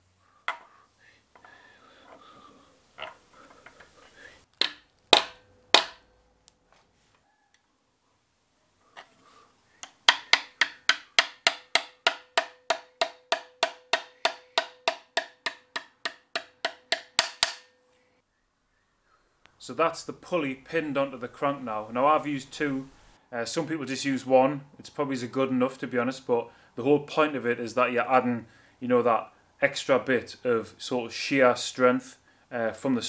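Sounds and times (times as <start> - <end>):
hammer tapping steel pin: 4.6 - 6.0, 9.8 - 17.8.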